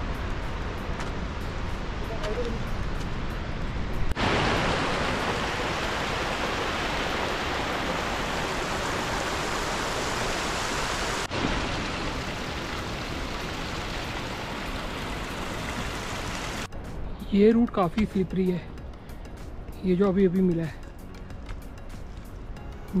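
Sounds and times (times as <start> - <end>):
mountain stream rushing: 0.0 - 16.7.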